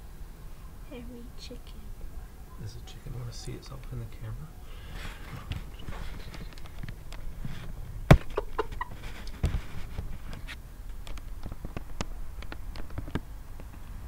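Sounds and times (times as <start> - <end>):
light clicks and rustles: 4.9 - 7.8, 8.6 - 13.9
dull thump: 7.4 - 8.5.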